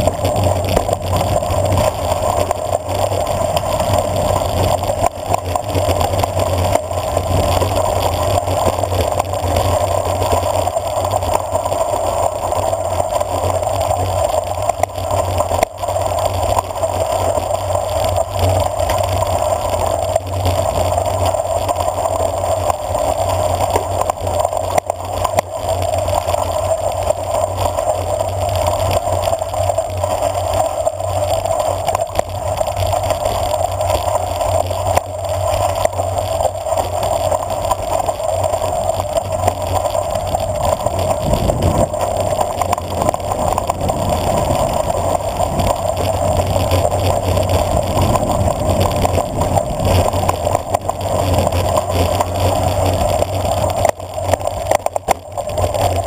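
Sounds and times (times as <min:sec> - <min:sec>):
rushing wind: 0:00.0 - 0:21.2, 0:38.3 - 0:56.0
bicycle tyres rumbling on gravel: 0:00.0 - 0:56.0.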